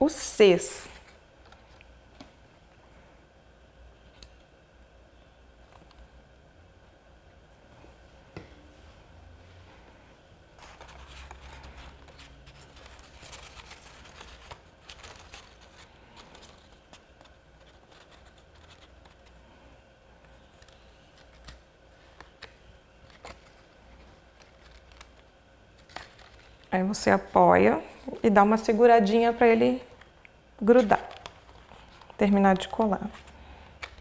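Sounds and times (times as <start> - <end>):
card paper rustling and scraping: 10.5 - 19.4, 20.3 - 25.2, 25.8 - 26.7, 30.7 - 34.0.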